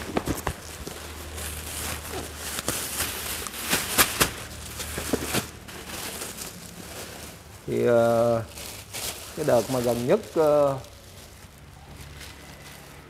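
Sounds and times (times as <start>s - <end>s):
cardboard box being handled: 0.0s - 7.2s
plastic bags rustling: 0.0s - 13.0s.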